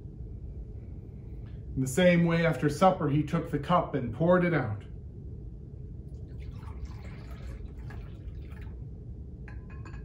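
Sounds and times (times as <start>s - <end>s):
liquid trickling into a cup: 6.1s - 8.9s.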